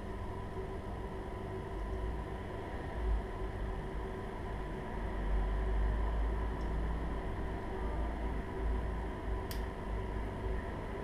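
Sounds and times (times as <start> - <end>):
air conditioner humming: 0.0 - 11.0
sharp click: 9.5 - 9.7.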